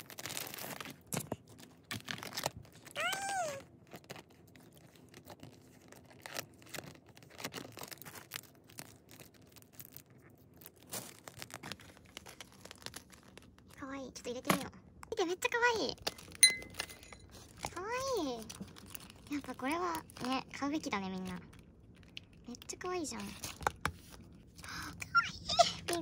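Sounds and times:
plastic packaging tearing and crinkling: 0:00.0 - 0:13.8, 0:17.3 - 0:24.5.

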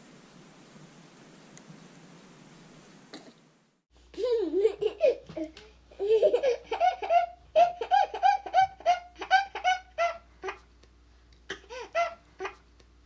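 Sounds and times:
toddler laughing: 0:04.2 - 0:10.7, 0:11.5 - 0:12.6.

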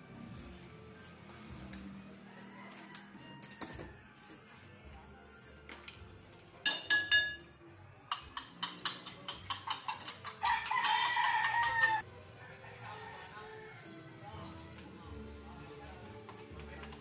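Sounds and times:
rooster crowing: 0:02.1 - 0:04.3, 0:10.4 - 0:14.0
kitchenware clattering: 0:06.6 - 0:07.5, 0:08.1 - 0:12.0
fork beating egg in bowl: 0:08.1 - 0:12.0.

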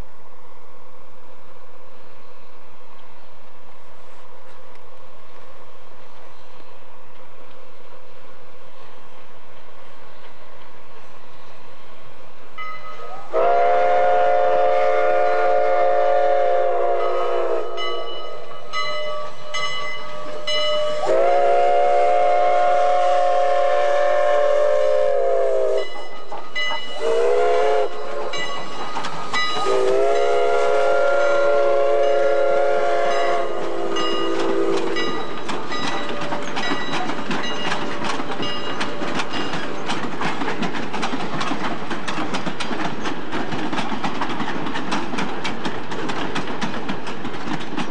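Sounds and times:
locomotive hissing and rattling: 0:01.0 - 0:47.9
steam locomotive whistle: 0:12.8 - 0:28.8, 0:29.4 - 0:37.0.

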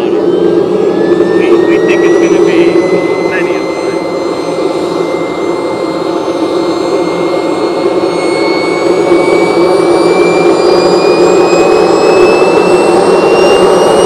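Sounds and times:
jet turbine running: 0:00.0 - 0:14.0.

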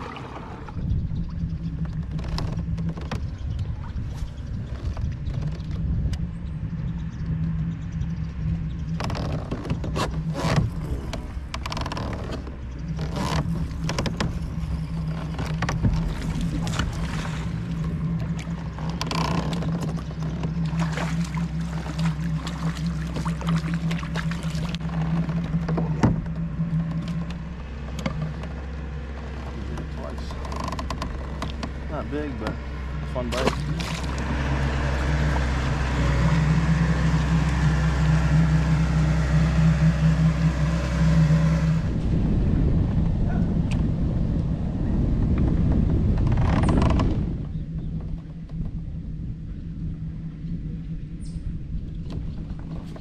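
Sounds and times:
water splashes and knocks: 0:00.0 - 0:00.8, 0:09.0 - 0:34.5
low motor hum: 0:00.0 - 0:53.0.

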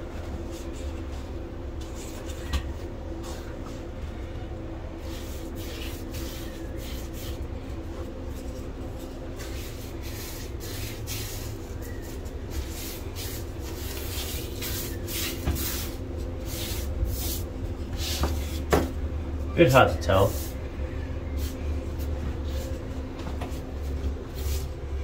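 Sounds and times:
steady low hum: 0:00.0 - 0:25.0
paintbrush swishing on drywall: 0:05.0 - 0:18.7, 0:19.7 - 0:20.6, 0:23.4 - 0:24.8.

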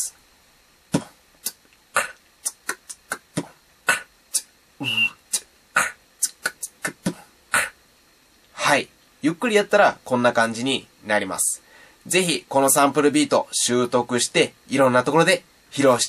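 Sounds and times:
human beatbox: 0:00.9 - 0:07.8
beatboxed whistle note: 0:01.0 - 0:07.8.

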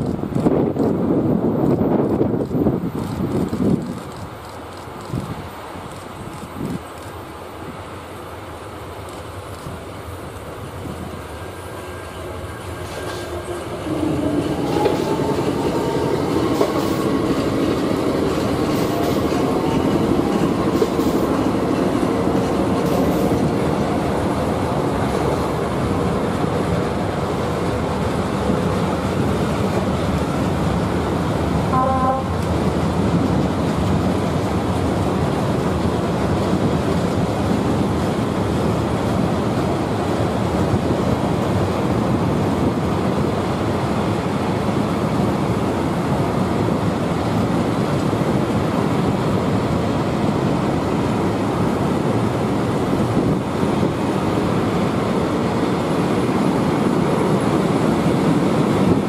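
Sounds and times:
freight train rolling past: 0:00.0 - 0:59.0
brief high tone: 0:31.8 - 0:32.3.

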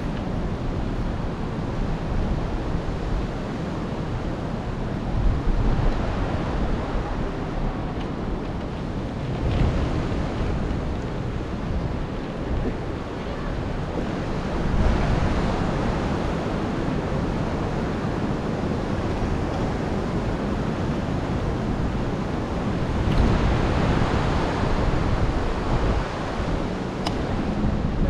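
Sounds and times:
ocean surf: 0:00.0 - 0:28.0
wind buffeting microphone: 0:00.0 - 0:28.0.

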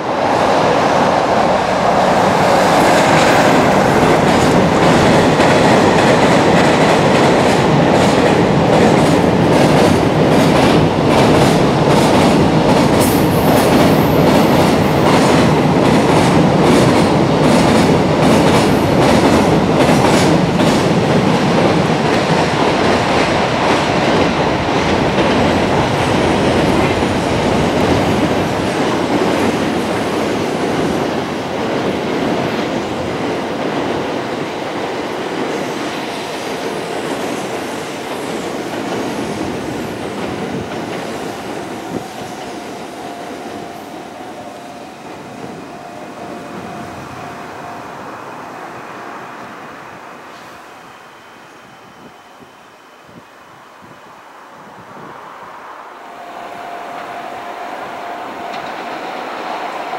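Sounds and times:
train rumble: 0:00.0 - 0:59.9
train wheels clacking over rail joints: 0:02.3 - 0:30.9.

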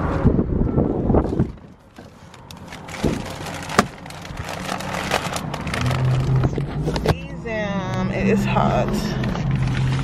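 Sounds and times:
plastic bag rustling: 0:01.8 - 0:07.1, 0:09.2 - 0:10.0.

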